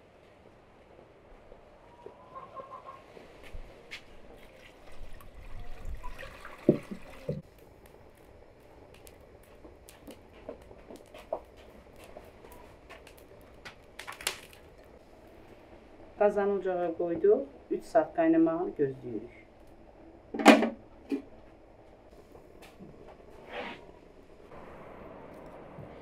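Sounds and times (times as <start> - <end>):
water pouring into metal pot: 4.6 - 7.4.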